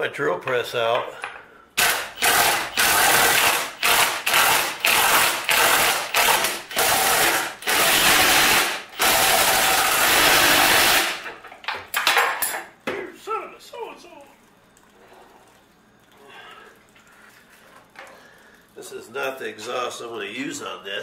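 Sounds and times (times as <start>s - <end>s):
impact driver running bolts: 1.8s - 11.4s.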